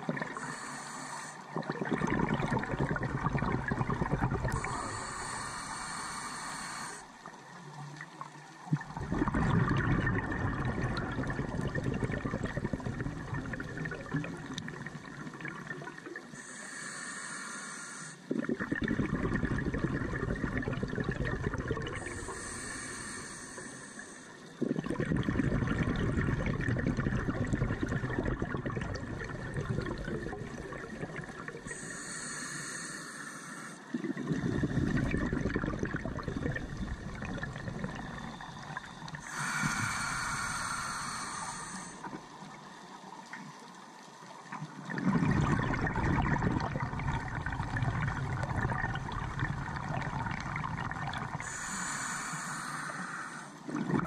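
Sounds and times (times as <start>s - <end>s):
bubbling exhale: 0.0s - 7.1s, 8.7s - 42.4s, 44.6s - 54.0s
hissing regulator inhale: 0.2s - 1.6s, 4.0s - 7.1s, 16.2s - 18.3s, 21.9s - 24.8s, 31.2s - 42.4s, 49.2s - 53.8s.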